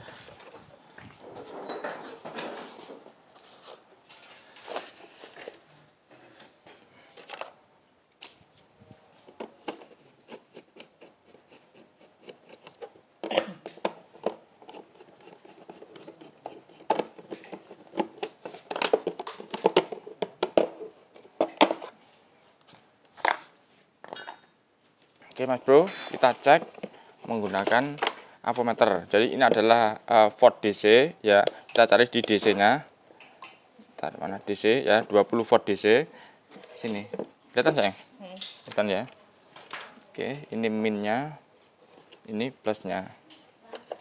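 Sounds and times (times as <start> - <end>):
tools and parts clicking and knocking: 1.3 - 3.1, 12.2 - 21.9.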